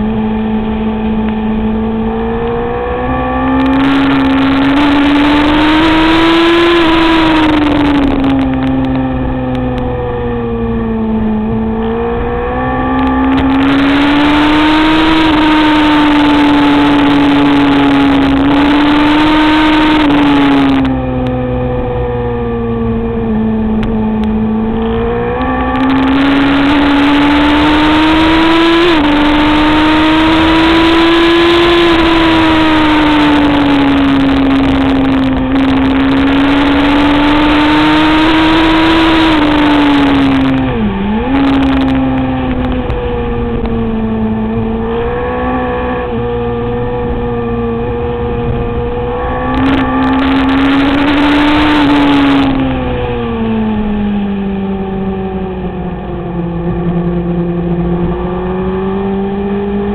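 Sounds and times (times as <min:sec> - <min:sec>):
motorcycle engine revving high: 0:00.0 - 0:59.9
heavy rush of noise: 0:31.9 - 0:54.3.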